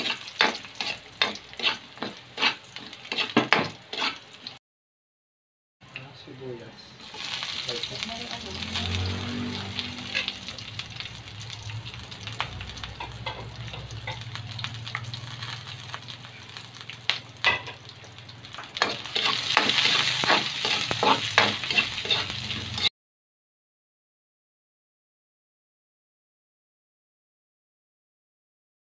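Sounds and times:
spatula scraping metal wok: 0.0 - 4.5, 7.0 - 12.0, 12.8 - 14.4, 18.7 - 22.9
food sizzling in hot oil: 0.0 - 4.6, 7.0 - 22.9.

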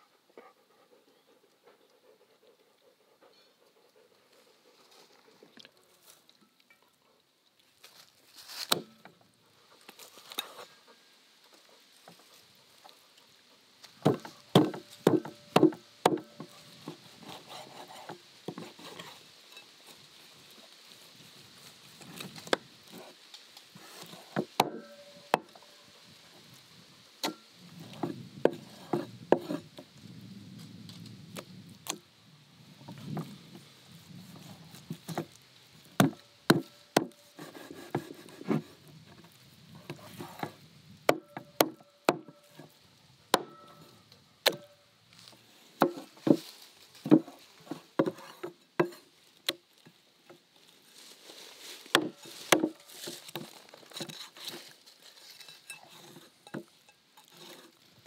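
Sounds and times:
cleaver chopping on wooden board: 14.0 - 16.5, 24.3 - 25.5, 36.0 - 37.2, 43.4 - 43.6, 44.5 - 44.7, 45.8 - 46.4, 52.0 - 52.8.

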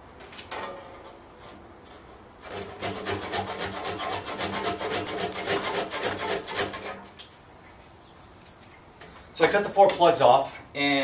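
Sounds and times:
handsaw cutting wood: 2.4 - 7.0.

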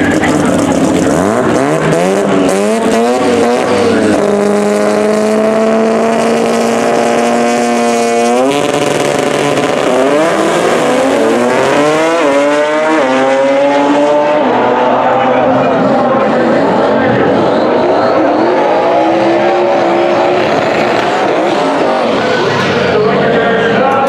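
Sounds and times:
race car engines revving: 0.0 - 24.0
race cars accelerating through gears: 0.0 - 24.0.

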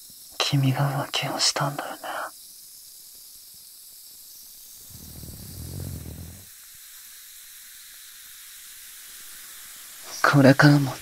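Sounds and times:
faint hiss: 0.0 - 11.0
low muffled rumble: 4.8 - 6.5.

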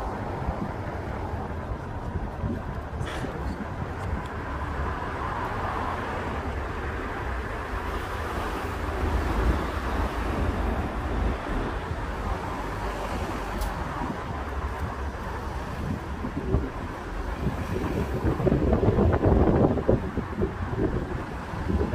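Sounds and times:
car engine and tyre rumble: 0.0 - 21.9
wind on microphone: 0.0 - 21.9.

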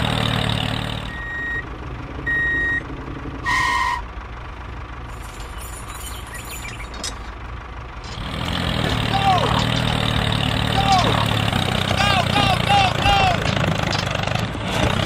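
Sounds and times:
low engine hum: 0.0 - 15.0
reversing alarm beeps: 1.1 - 1.6, 2.3 - 2.8
low vehicle honk: 3.4 - 4.1.

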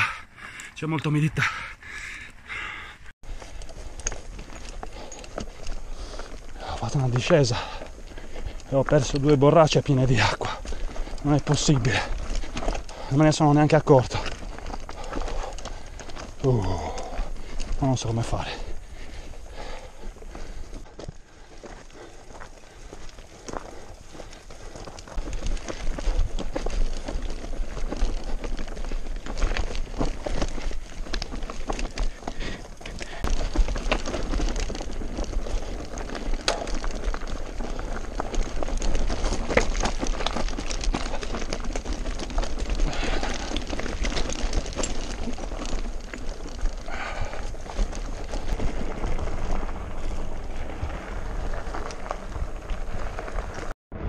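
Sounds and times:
bike frame rattling: 0.0 - 53.7
bike tyres clattering on stones: 3.3 - 53.7.

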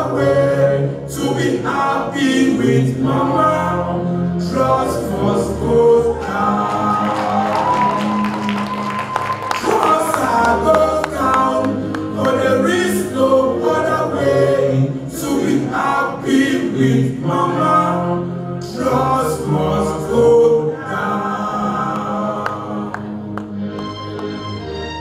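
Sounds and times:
person singing into microphone: 9.5 - 23.2.

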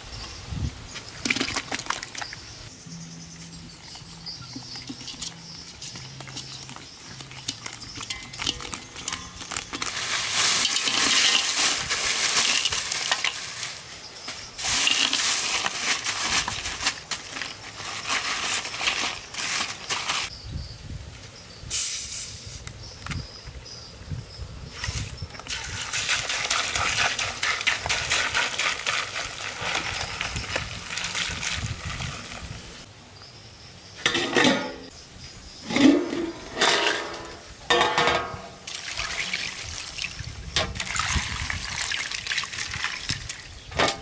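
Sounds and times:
ice cubes clattering into wok: 6.5 - 13.8, 14.6 - 20.3
bottle cap hiss: 21.7 - 22.7.

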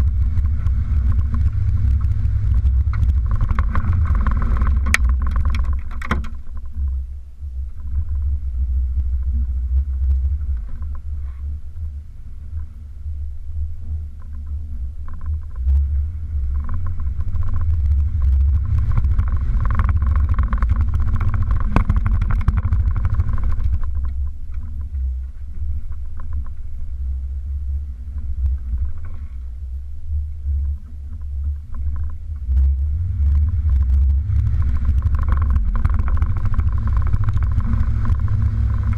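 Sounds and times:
vehicle body knocking and rattling: 0.0 - 7.1, 16.4 - 29.4, 30.6 - 38.9
off-road vehicle engine rumbling: 0.0 - 38.9.

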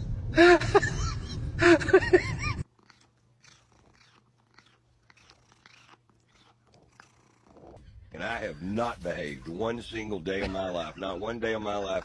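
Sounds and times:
cat smacking lips and chewing: 2.6 - 7.8.

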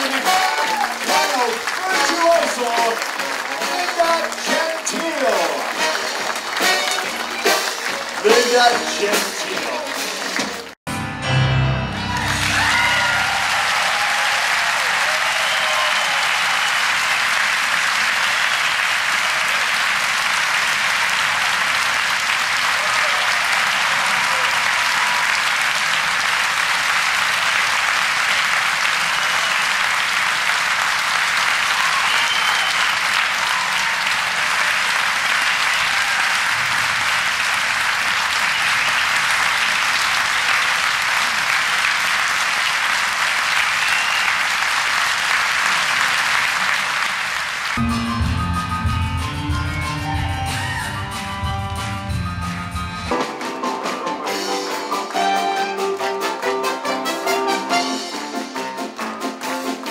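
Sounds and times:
scattered cheers: 0.0 - 10.6, 11.9 - 19.8, 22.6 - 26.5, 28.8 - 42.6, 43.4 - 47.2, 50.0 - 51.2
audience applauding: 0.0 - 10.8, 11.9 - 52.2, 53.1 - 59.9.

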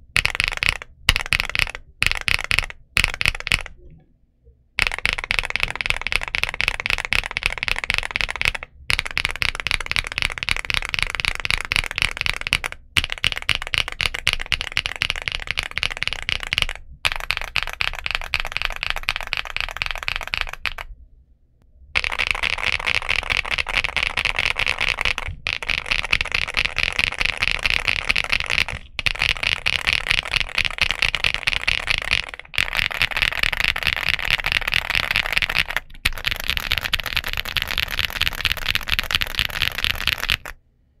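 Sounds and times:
fast typing on mechanical keyboard: 0.1 - 3.8, 4.8 - 20.9, 22.0 - 40.6.

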